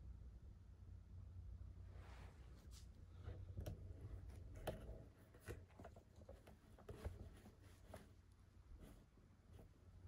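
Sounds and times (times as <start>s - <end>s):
low steady hum: 0.0s - 10.0s
soft taps and rustles: 2.2s - 10.0s.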